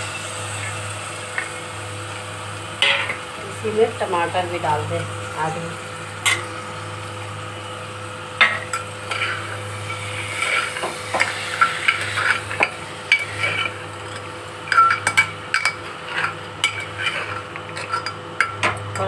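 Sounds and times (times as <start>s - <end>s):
low sizzle: 0.0s - 19.0s
ladle scraping metal pot: 9.0s - 18.6s.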